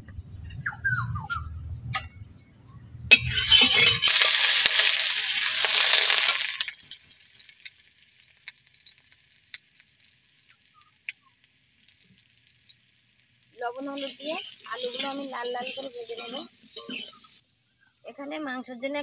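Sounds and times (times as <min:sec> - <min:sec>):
oil popping: 0:03.1 - 0:18.0
potatoes sizzling in hot oil: 0:03.2 - 0:18.9.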